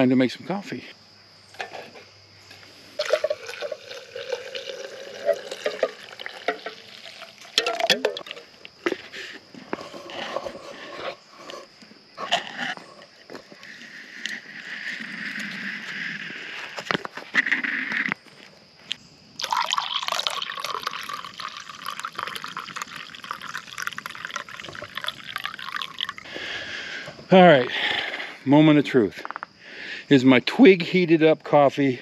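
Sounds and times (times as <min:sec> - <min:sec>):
metal pot clinking: 0:03.0 - 0:08.4
hot water pouring: 0:03.0 - 0:08.5, 0:19.4 - 0:26.3.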